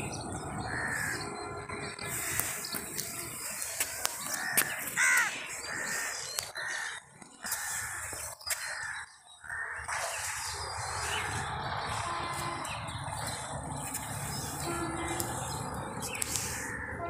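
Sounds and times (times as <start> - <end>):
crows cawing: 0.6 - 1.2, 2.0 - 2.8, 3.4 - 12.4, 15.0 - 17.0.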